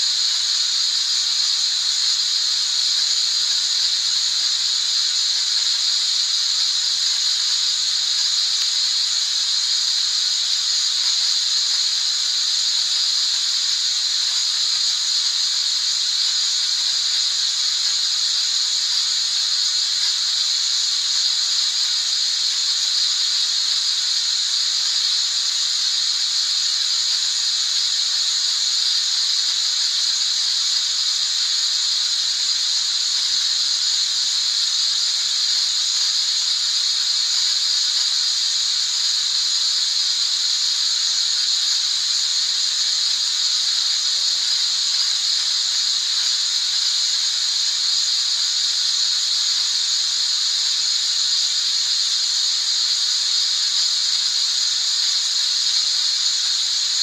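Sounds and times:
high-pitched white noise hiss: 0.0 - 57.0.

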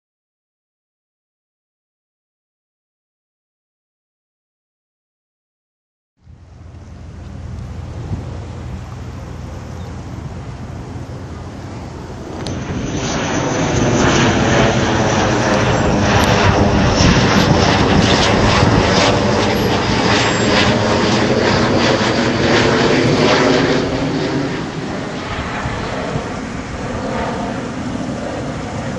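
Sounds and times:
fighter jet engine roar: 6.2 - 28.9.

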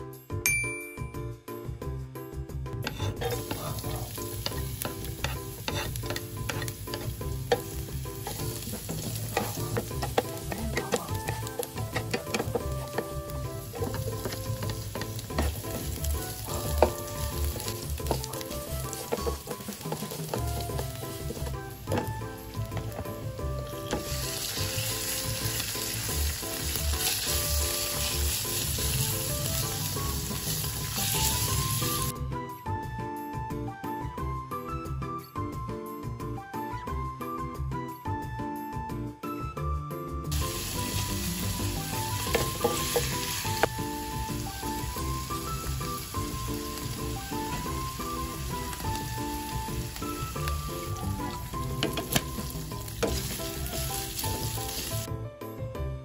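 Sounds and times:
spatula scraping pan: 2.8 - 23.1
garlic sizzling in oil: 2.8 - 32.1, 40.3 - 55.1.

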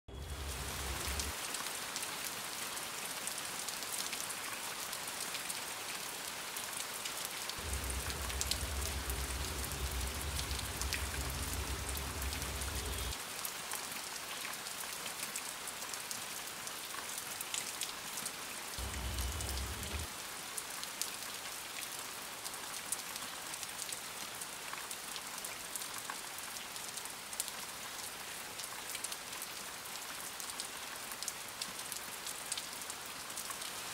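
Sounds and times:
low hum: 0.1 - 1.3, 7.6 - 13.2, 18.8 - 20.1
rain-like pattering hiss: 0.1 - 33.9.

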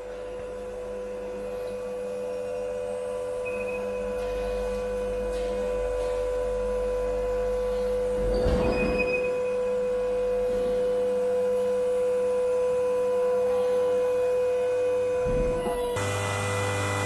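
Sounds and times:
log splitter motor humming: 14.4 - 17.0.

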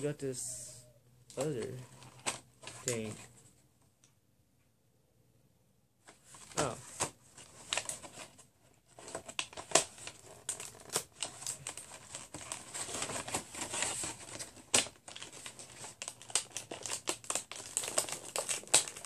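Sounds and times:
paper and cardboard rustling: 1.4 - 3.6, 6.0 - 19.0.

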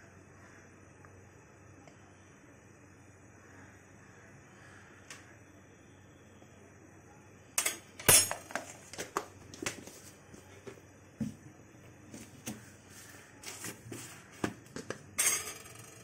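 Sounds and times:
utensils and dishes clinking: 7.6 - 8.8, 15.2 - 16.0.

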